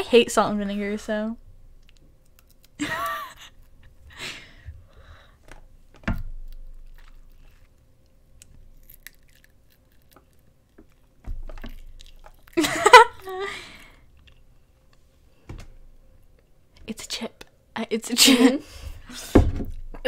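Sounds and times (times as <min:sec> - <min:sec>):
crunchy chewing: 0:01.8 - 0:02.8, 0:06.4 - 0:12.6.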